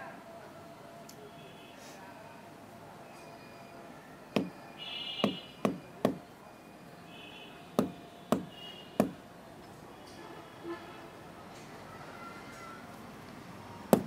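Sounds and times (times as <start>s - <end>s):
seed pod knocked against brick: 4.4s - 4.6s, 5.2s - 6.2s, 7.8s - 9.2s.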